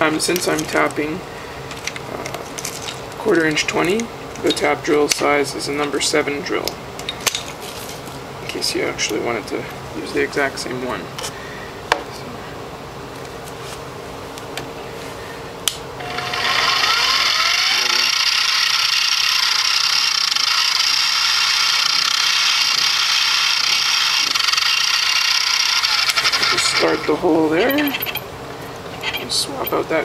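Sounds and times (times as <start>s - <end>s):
milling machine motor whirring: 16.0s - 28.3s.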